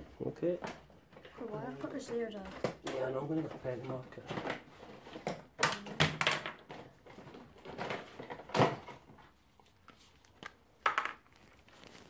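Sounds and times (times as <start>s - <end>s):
gloved hands rustling and scraping: 9.2s - 12.0s.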